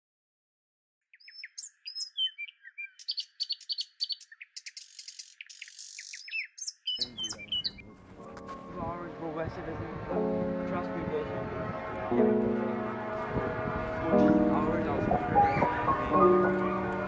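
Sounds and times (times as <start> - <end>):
small birds chirping: 1.0 - 8.1
music: 7.0 - 17.0.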